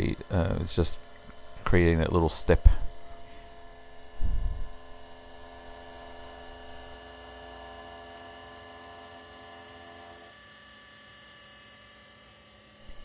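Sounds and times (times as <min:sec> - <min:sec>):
milling spindle humming and whining: 0:00.0 - 0:13.0.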